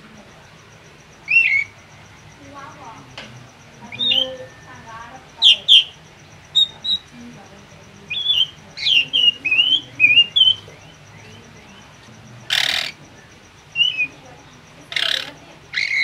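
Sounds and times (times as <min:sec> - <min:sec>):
bird whistled chirps: 0:01.3 - 0:01.7, 0:03.9 - 0:07.2, 0:08.1 - 0:11.4, 0:13.7 - 0:14.2, 0:15.0 - 0:16.0
harsh rasping bird call: 0:12.4 - 0:13.0, 0:14.9 - 0:16.0.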